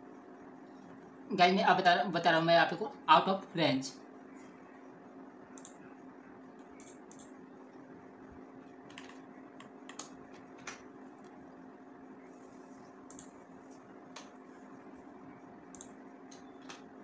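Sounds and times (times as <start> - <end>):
faint hum: 0.0 - 17.0
keyboard and mouse clicks: 6.6 - 7.4, 8.9 - 11.4, 13.0 - 13.4, 15.7 - 16.9.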